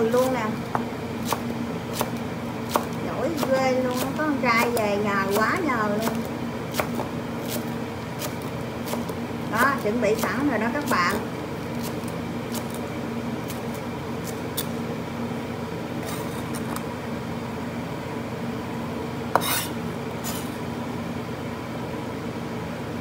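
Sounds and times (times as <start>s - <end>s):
steady hum: 0.0s - 23.0s
knife scraping cutting board: 1.2s - 11.2s, 11.8s - 12.8s, 13.5s - 14.8s, 16.0s - 16.8s, 19.3s - 20.6s.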